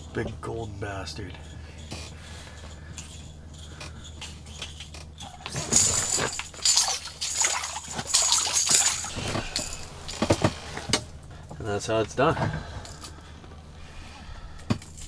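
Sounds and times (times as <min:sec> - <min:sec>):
fish splashing in water: 0:06.5 - 0:09.1.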